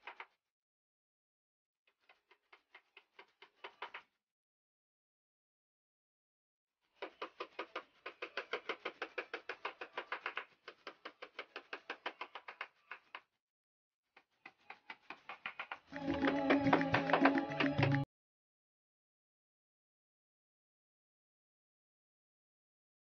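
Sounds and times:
hammer tapping nails: 2.0s - 4.1s, 7.0s - 13.2s, 14.2s - 18.0s.

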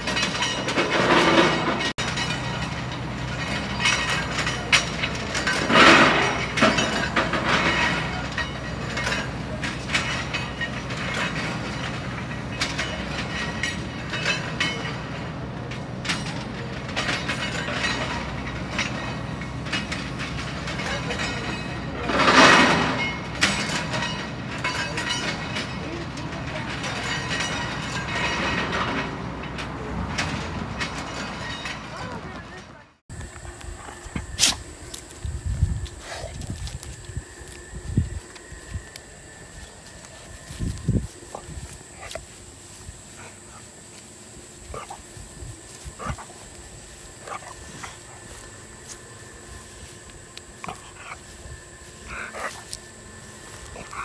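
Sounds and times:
steel plates clanking: 0.0s - 54.0s
low engine drone: 32.0s - 54.0s.

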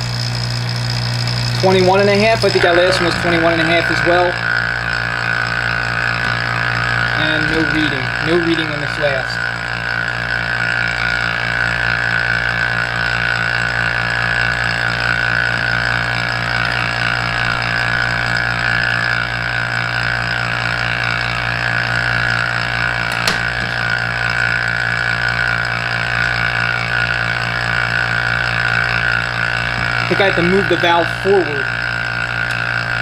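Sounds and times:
vacuum pump humming and hissing: 0.0s - 33.0s
sharp click: 23.1s - 23.7s.

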